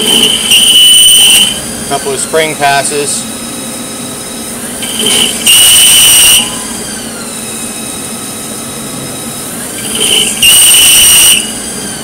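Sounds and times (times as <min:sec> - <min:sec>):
lathe running: 0:00.0 - 0:03.2, 0:04.6 - 0:05.6, 0:09.2 - 0:12.0.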